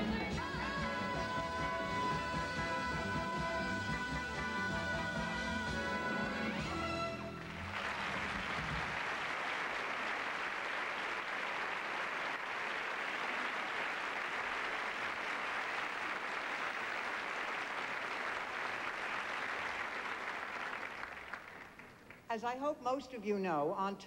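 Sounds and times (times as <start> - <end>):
audience applauding: 7.2 - 22.3.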